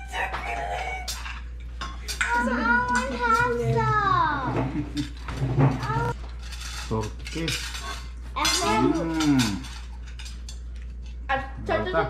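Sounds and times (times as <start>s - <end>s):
forks clinking on plates: 0.1s - 3.7s, 4.7s - 11.2s
person humming or moaning: 8.8s - 9.6s.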